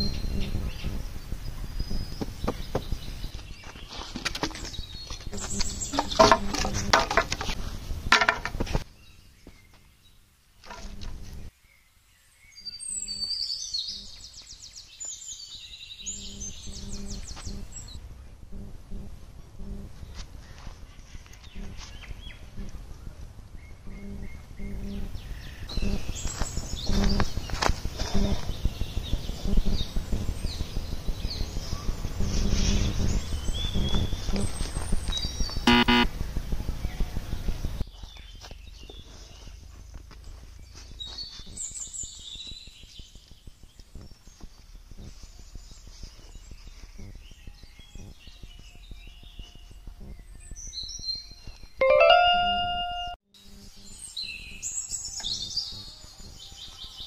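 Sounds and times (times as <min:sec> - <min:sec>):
bird chirping: 0:00.0 - 0:06.9, 0:10.8 - 0:18.0, 0:23.6 - 0:57.0
dry sticks clattering: 0:04.0 - 0:08.6
steady low rumble: 0:17.5 - 0:20.4, 0:22.4 - 0:37.8.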